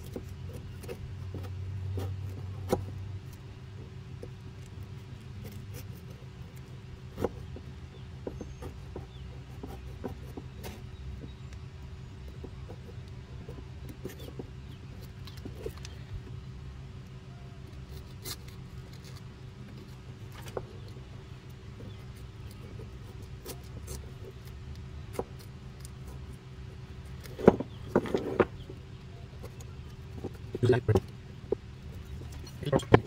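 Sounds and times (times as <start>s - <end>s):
steady low hum: 0.0s - 33.0s
knife scraping tape: 17.7s - 21.0s, 21.8s - 26.4s.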